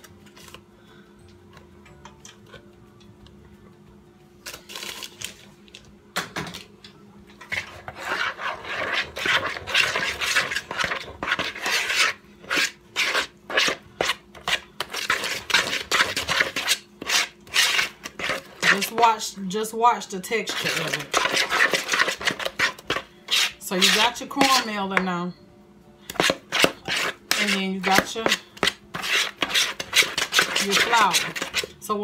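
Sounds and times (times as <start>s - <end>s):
spoon stirring batter in bowl: 7.4s - 19.3s, 20.0s - 25.0s, 26.1s - 31.9s.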